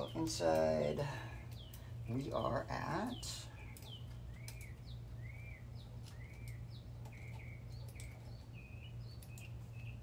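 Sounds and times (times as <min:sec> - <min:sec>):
small birds chirping: 0:00.0 - 0:10.0
steady low hum: 0:00.0 - 0:10.0.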